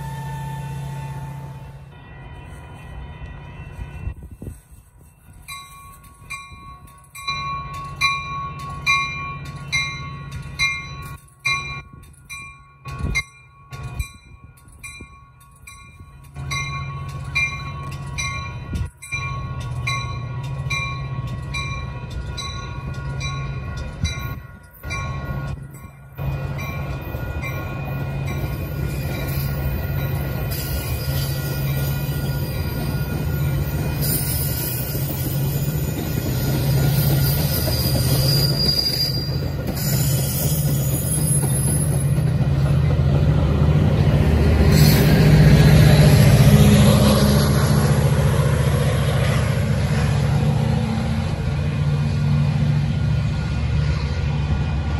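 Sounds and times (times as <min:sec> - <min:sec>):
railroad crossing bell ringing: 0:00.0 - 0:43.2
train rumble: 0:00.0 - 0:54.9.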